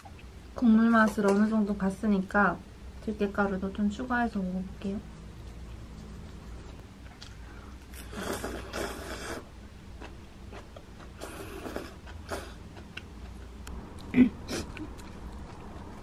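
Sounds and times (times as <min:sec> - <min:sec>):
person slurping soup: 0:07.9 - 0:09.5, 0:11.2 - 0:12.6
chewing: 0:10.0 - 0:16.0.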